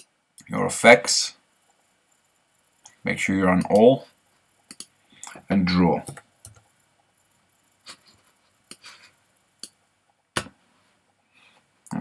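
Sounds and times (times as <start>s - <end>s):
mouse and keyboard clicks: 4.6s - 5.4s, 9.6s - 9.8s.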